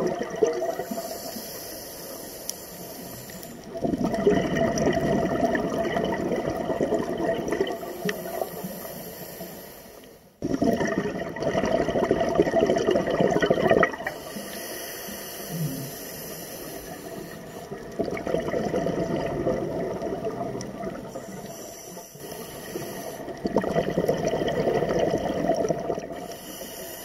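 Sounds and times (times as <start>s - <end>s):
exhaled bubbles gushing: 0.0s - 1.1s, 3.6s - 8.5s, 10.4s - 14.3s, 17.7s - 21.5s, 23.2s - 26.3s
regulator inhale hiss: 0.8s - 3.7s, 7.7s - 10.4s, 14.0s - 18.0s, 21.1s - 23.4s, 26.2s - 27.0s.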